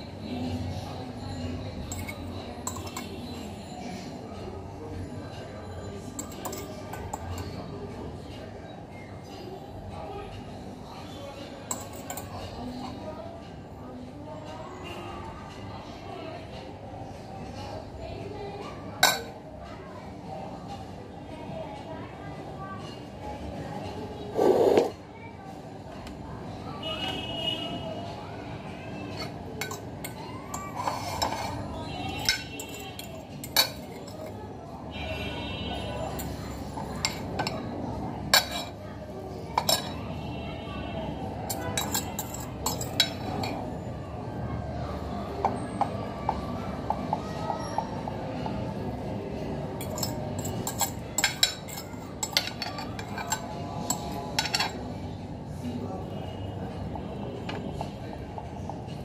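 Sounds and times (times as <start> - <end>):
metal utensil scraping glass dish: 1.8 - 3.2, 24.4 - 25.0, 29.1 - 34.0, 41.5 - 43.6, 49.8 - 54.8.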